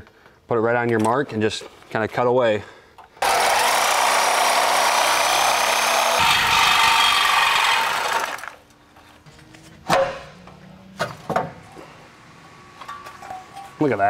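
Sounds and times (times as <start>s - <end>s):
reciprocating saw cutting steel: 3.2s - 8.6s.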